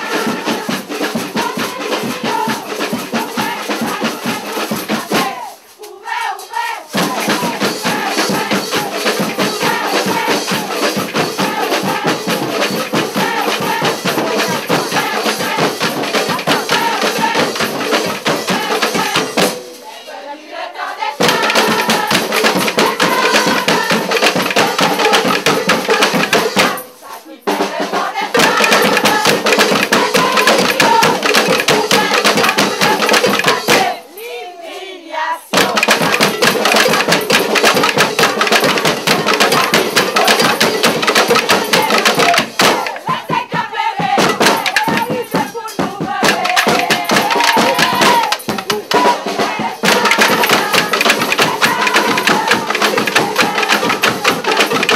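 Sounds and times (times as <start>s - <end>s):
crowd singing together: 0.0s - 54.9s
fast drums and hand percussion: 0.0s - 54.9s.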